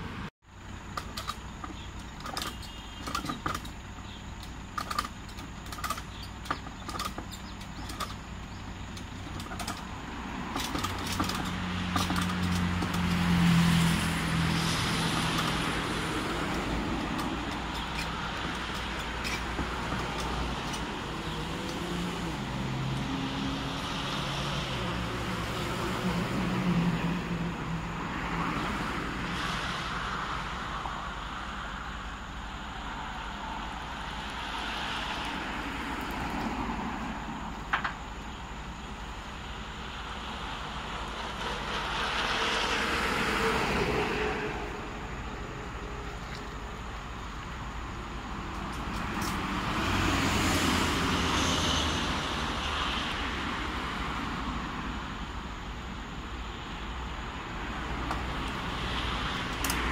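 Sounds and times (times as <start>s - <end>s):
vehicles passing: 0.0s - 59.9s
sharp clicks and knocks: 0.9s - 3.8s, 4.4s - 8.2s, 8.9s - 13.4s, 15.1s - 21.8s, 37.6s - 38.1s, 59.4s - 59.9s.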